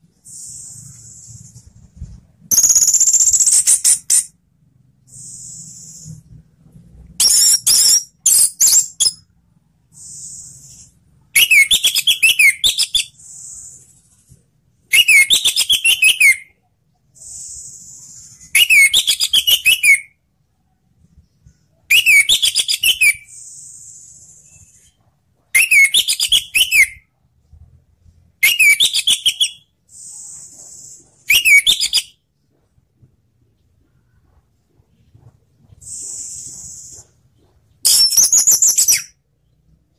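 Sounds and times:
soft high hissing bird notes: 0.1 - 1.8, 5.0 - 6.3, 9.9 - 11.0, 13.1 - 14.3, 17.2 - 18.6, 23.2 - 25.0, 29.8 - 31.5, 35.8 - 36.9.

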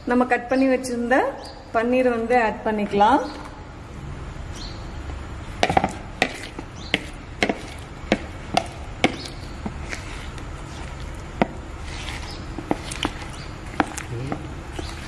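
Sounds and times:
whisk scraping plastic bowl: 6.2 - 7.9, 11.8 - 15.0.

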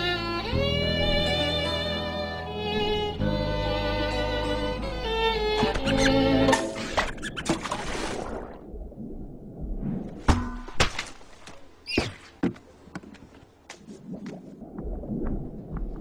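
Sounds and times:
string music: 0.0 - 7.1
squeaky chirp: 5.7 - 6.2.

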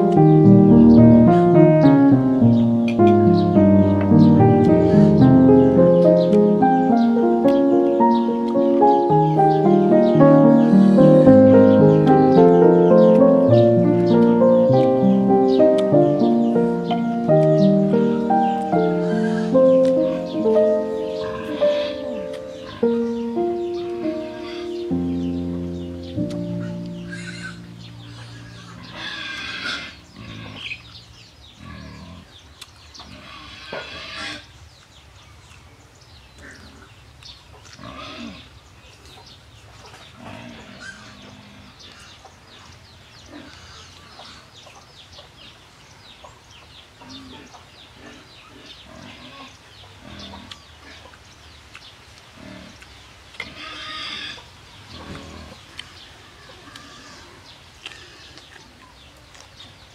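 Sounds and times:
chickens clucking: 0.0 - 31.0, 46.2 - 51.8.

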